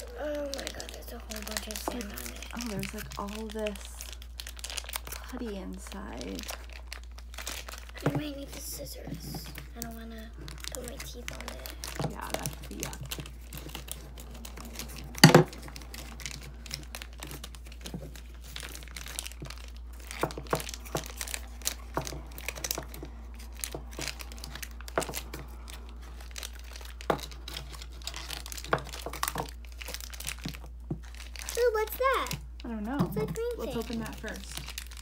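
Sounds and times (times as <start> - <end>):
scissors cutting plastic wrapper: 0.0 - 35.0.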